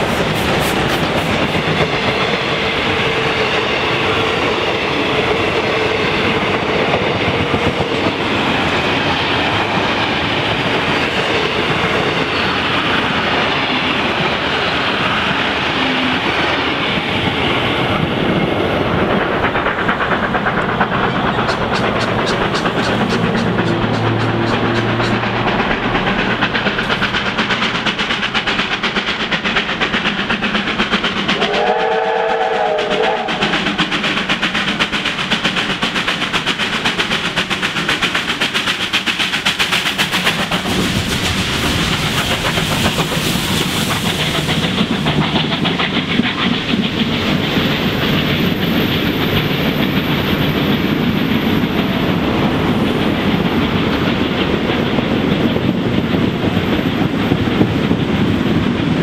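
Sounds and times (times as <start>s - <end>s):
steam locomotive exhaust beats: 0.0s - 59.0s
train wheels clicking on track: 0.0s - 59.0s
steam whistle: 31.4s - 33.6s.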